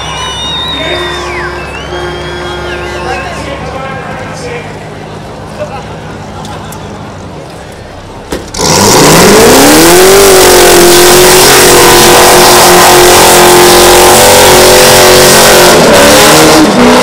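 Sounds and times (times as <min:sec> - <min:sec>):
car engine revving loudly: 0:08.5 - 0:17.0.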